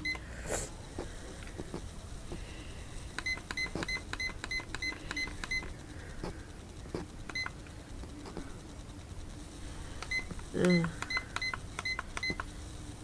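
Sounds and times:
alarm clock beeping: 3.1 - 5.7, 7.3 - 7.5, 10.0 - 12.5.

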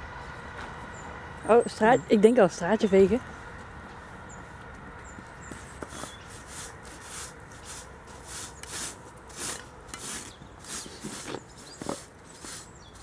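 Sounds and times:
broom sweeping grit on stone: 5.9 - 13.0.

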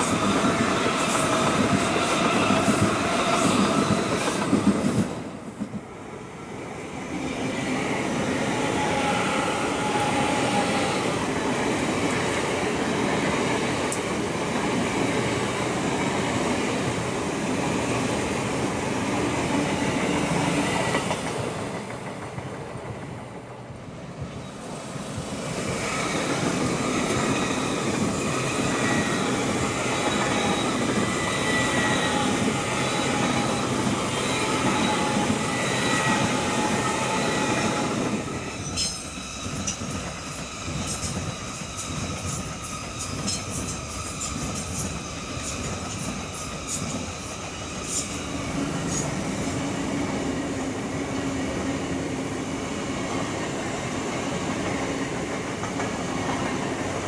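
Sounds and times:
high-pitched train whine: 0.0 - 57.0
train passing with rolling rumble: 0.0 - 57.0.

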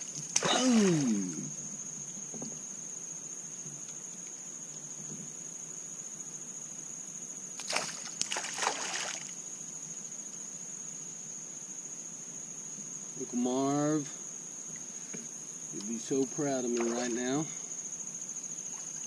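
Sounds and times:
high-pitched insect drone: 0.0 - 2.6
fish splashing at water surface: 7.6 - 9.3.

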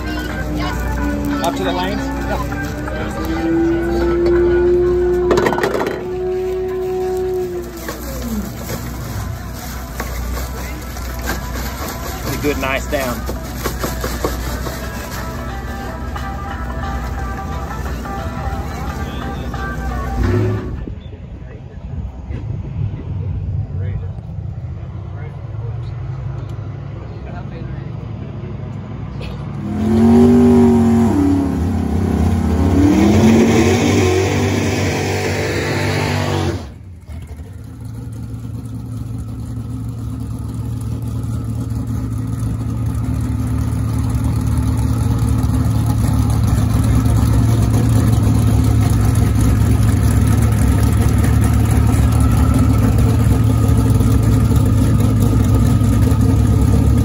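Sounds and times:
engine idling: 0.0 - 29.7, 36.5 - 57.0
engine revving hard: 29.5 - 36.8.

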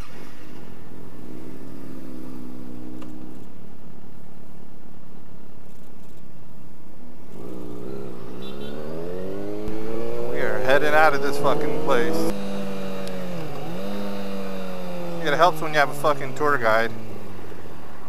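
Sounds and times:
motorcycle engine revving: 0.0 - 3.6, 7.2 - 18.0.

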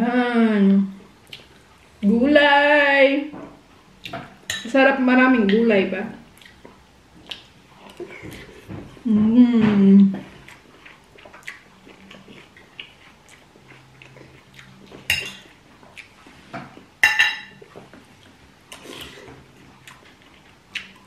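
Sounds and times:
cutlery clinking on plates: 15.0 - 15.5, 16.6 - 17.6.

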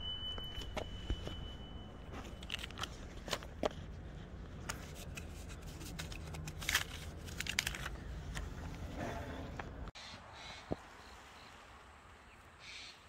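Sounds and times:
plastic wrapper crinkling: 2.1 - 3.5, 5.1 - 8.0.

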